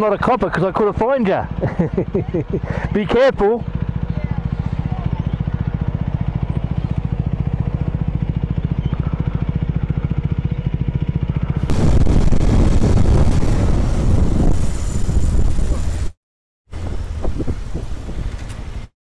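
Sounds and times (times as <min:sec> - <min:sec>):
motorcycle riding through traffic: 0:00.0 - 0:16.2, 0:16.8 - 0:18.9
motorcycle engine idling: 0:00.1 - 0:12.8
wind noise: 0:11.6 - 0:18.9.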